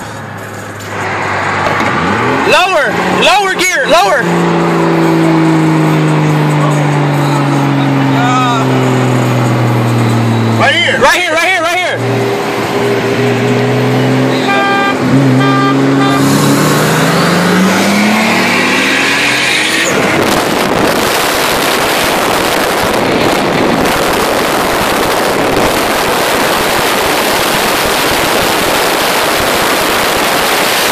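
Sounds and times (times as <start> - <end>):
car engine accelerating hard: 0.9 - 30.9
horn toot: 14.2 - 19.9.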